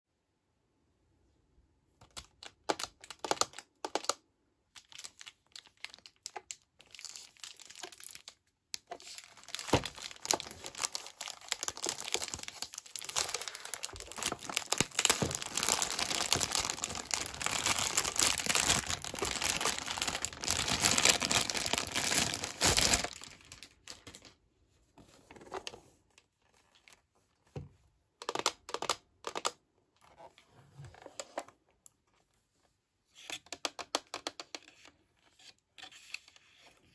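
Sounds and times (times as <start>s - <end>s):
plastic wrapping crinkling: 2.1s - 4.2s, 4.8s - 24.4s.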